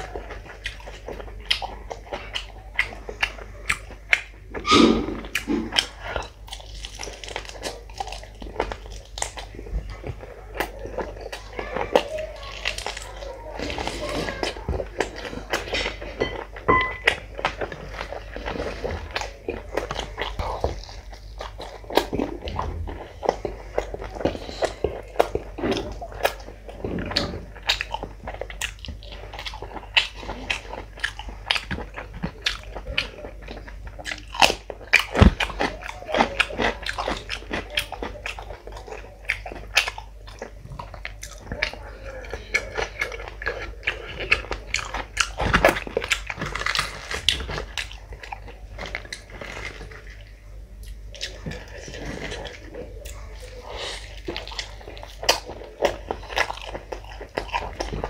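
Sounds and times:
man chewing with wet smacking: 0:00.0 - 0:58.0.

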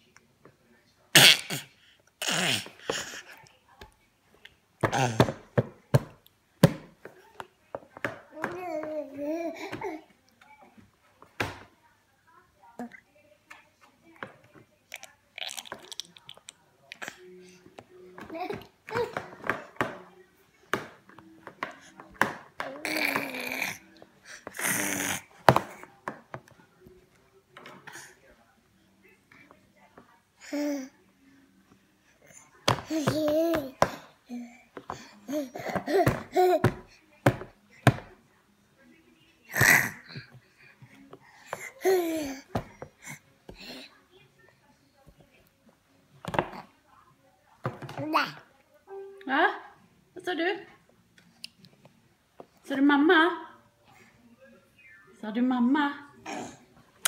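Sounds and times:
baby making raspy sounds: 0:01.2 - 0:03.2, 0:22.8 - 0:23.8.

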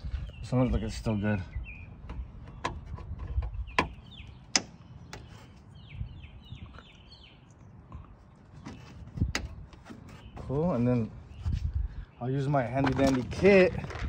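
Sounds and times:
bird chirping: 0:00.0 - 0:13.1.

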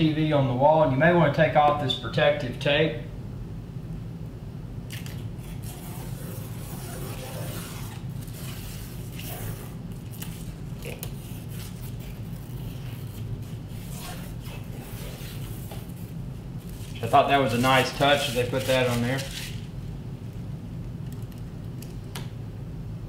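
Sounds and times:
low hum: 0:03.0 - 0:18.5
plastic tape peeling: 0:04.9 - 0:19.8.

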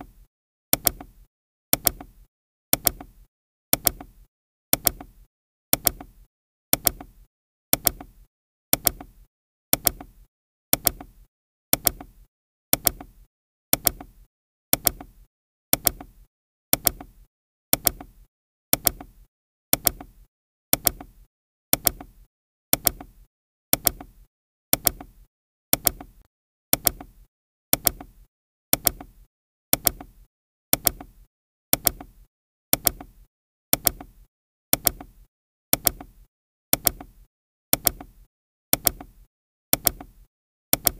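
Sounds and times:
timer ticking clicks: 0:00.8 - 0:01.1, 0:01.8 - 0:17.2, 0:17.8 - 0:18.2, 0:18.8 - 0:19.2, 0:19.8 - 0:20.2, 0:20.8 - 0:21.2, 0:21.8 - 0:22.2, 0:22.8 - 0:23.2, 0:23.8 - 0:24.2, 0:24.8 - 0:25.2, 0:25.8 - 0:27.2, 0:27.8 - 0:28.2, 0:28.8 - 0:29.2, 0:29.8 - 0:30.2, 0:30.8 - 0:32.2, 0:32.8 - 0:33.2, 0:33.8 - 0:34.2, 0:34.8 - 0:35.2, 0:35.8 - 0:36.2, 0:36.8 - 0:37.2, 0:37.8 - 0:38.2, 0:38.8 - 0:39.2, 0:39.8 - 0:40.9.

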